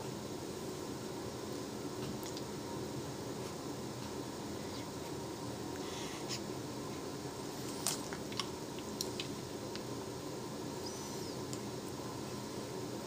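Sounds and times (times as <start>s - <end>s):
room hum: 0.0s - 13.0s.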